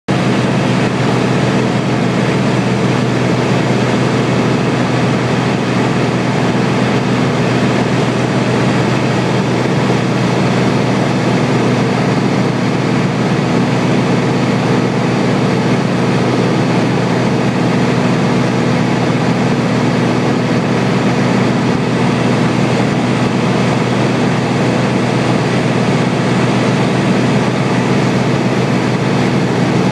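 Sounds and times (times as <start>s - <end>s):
airplane engine and propeller droning: 0.1s - 29.9s
rush of air noise: 0.1s - 29.9s.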